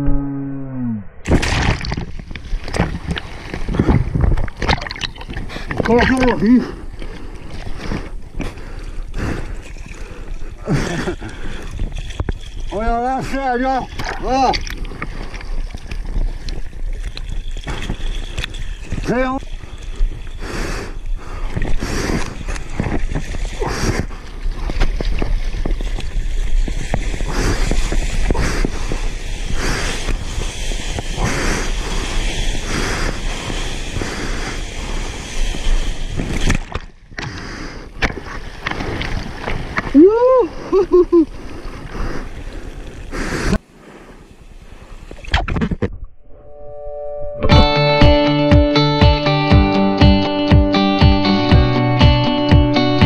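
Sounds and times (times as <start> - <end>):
wind on microphone: 0.0 - 6.0
sea water splashing and rushing: 1.2 - 45.4
person whooping: 39.9 - 41.3.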